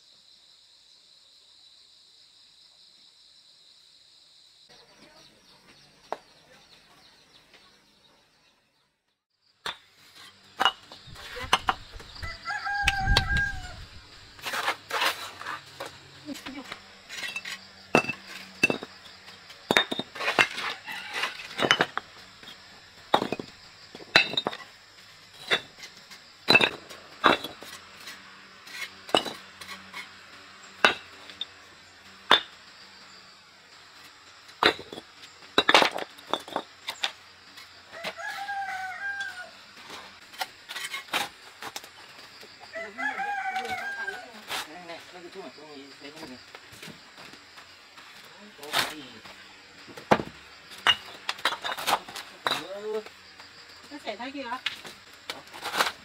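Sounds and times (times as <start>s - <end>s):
rooster crowing: 12.1s - 14.0s, 20.6s - 21.6s, 37.9s - 39.7s, 42.6s - 44.4s.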